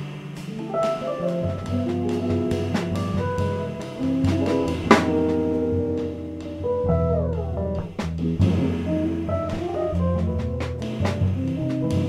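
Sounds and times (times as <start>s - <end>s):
drum kit: 0.0s - 12.0s
electric bass: 0.0s - 12.0s
electric guitar: 0.0s - 12.0s.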